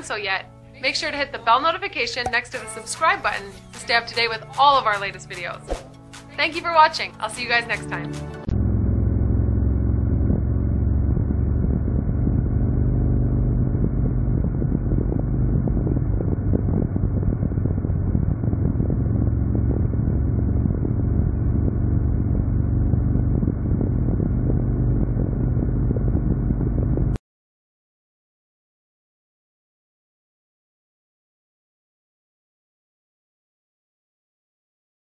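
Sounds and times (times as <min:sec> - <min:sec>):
motorcycle engine cruising: 0:08.4 - 0:27.2.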